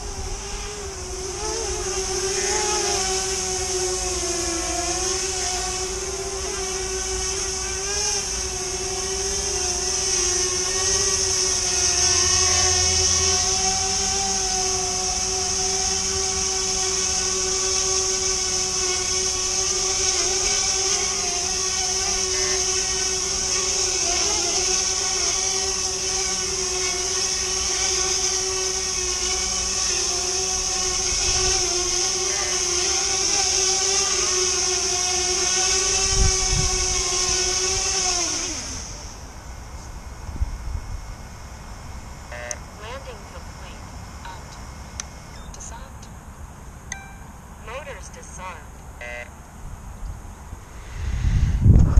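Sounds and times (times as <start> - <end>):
drone motors whining: 0.0 - 51.9
wind rumble on microphone: 35.9 - 37.9, 49.6 - 51.9.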